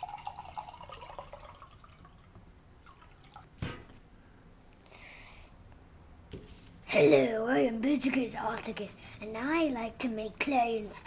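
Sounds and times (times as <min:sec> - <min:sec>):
liquid pouring into mug: 0:00.0 - 0:03.5.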